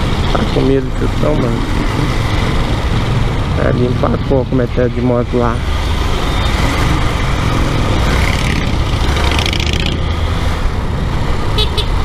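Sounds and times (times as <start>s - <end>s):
traffic noise: 0.0s - 12.0s.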